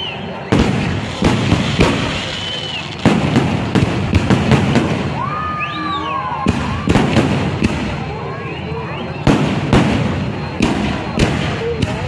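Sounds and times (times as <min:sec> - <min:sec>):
crackling rumble of fireworks: 0:00.0 - 0:05.7, 0:06.4 - 0:12.0
fireworks shells bursting: 0:00.5 - 0:05.2.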